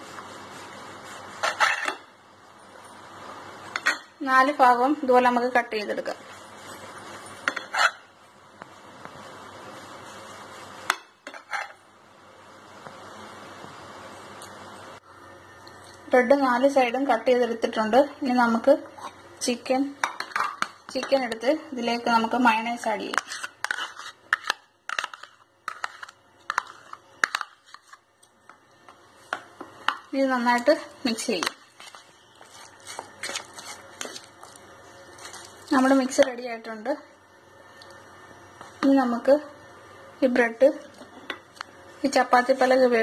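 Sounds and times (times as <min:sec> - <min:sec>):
knife scraping ceramic plate: 0:01.3 - 0:02.0, 0:07.4 - 0:08.1, 0:10.9 - 0:11.8, 0:23.1 - 0:27.9.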